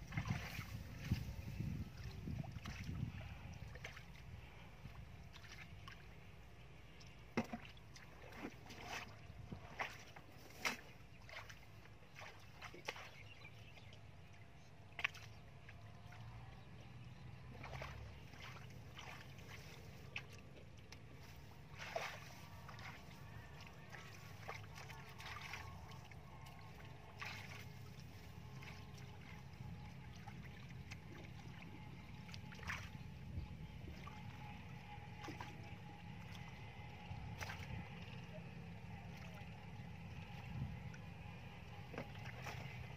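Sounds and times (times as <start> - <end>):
low steady rumble: 0.0 - 42.9
hands splashing in muddy water: 21.2 - 29.4.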